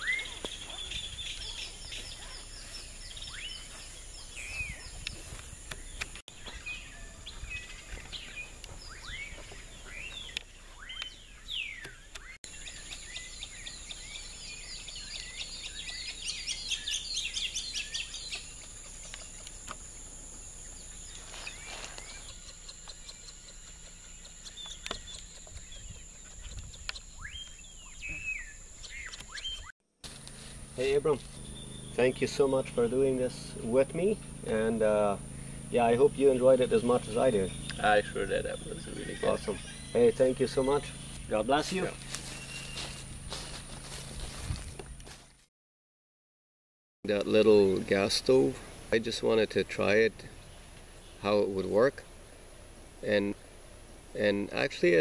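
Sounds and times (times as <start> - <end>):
wild birds chirping and whistling: 0.0 - 44.6, 47.1 - 55.0
high-pitched insect drone: 30.1 - 43.8.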